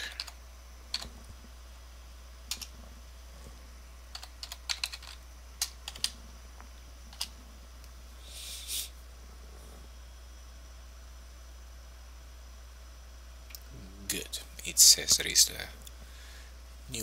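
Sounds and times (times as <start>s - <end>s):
computer keyboard keystrokes: 0.0s - 1.1s, 2.5s - 2.7s, 4.1s - 6.2s, 7.1s - 7.3s
steady low hum: 0.0s - 17.0s.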